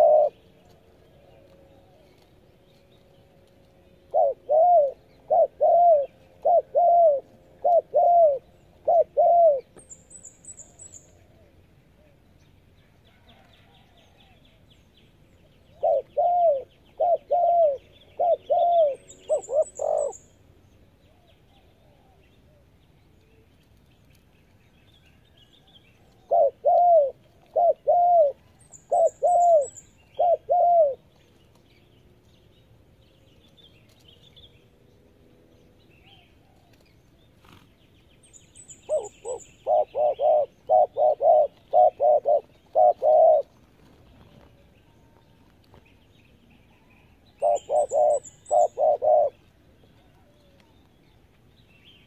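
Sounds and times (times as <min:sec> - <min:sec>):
dove cooing: 0:00.0 - 0:00.6, 0:04.0 - 0:09.8, 0:15.8 - 0:20.2, 0:26.2 - 0:31.1, 0:38.8 - 0:43.5, 0:47.4 - 0:49.4
small bird chirping: 0:27.6 - 0:32.0, 0:35.9 - 0:52.0.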